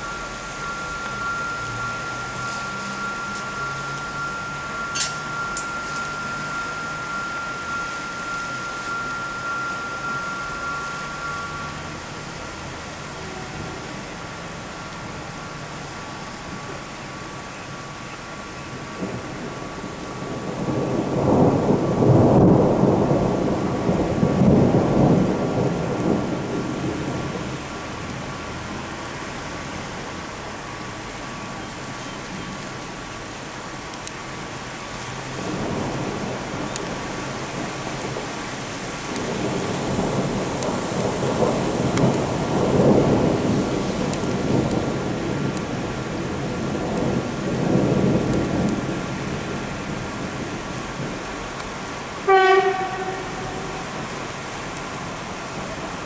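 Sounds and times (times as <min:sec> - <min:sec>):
faint high whine: 0:00.0 - 0:13.8
rain hissing: 0:00.0 - 0:56.0
rolling thunder: 0:18.8 - 0:28.4, 0:35.2 - 0:56.0.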